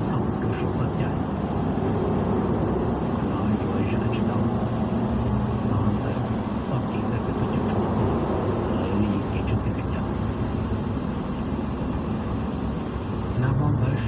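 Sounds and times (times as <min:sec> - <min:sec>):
moving vehicle rumble: 0:00.0 - 0:14.0.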